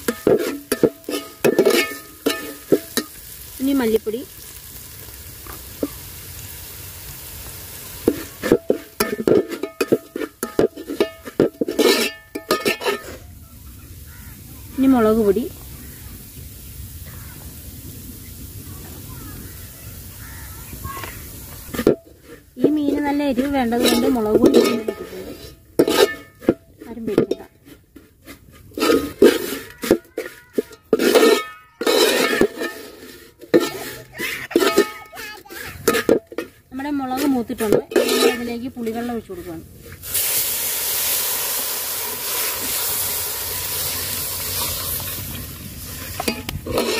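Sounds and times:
metal ladle scraping a pot: 0.0s - 3.4s, 8.0s - 13.3s, 21.6s - 41.6s, 42.2s - 46.9s
oil sizzling: 0.0s - 46.9s.

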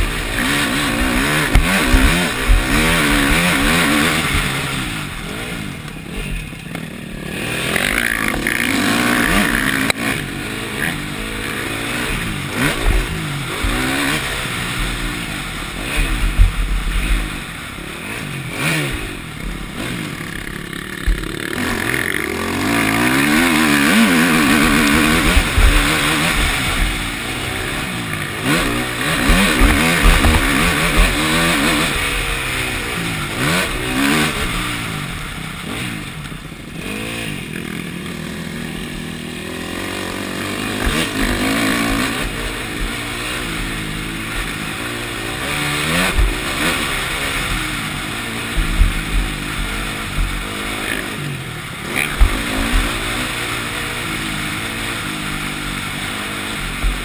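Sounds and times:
motocross bike engine revving: 0.0s - 57.0s
bike knocking over rough track: 0.4s - 4.5s, 28.7s - 31.3s.

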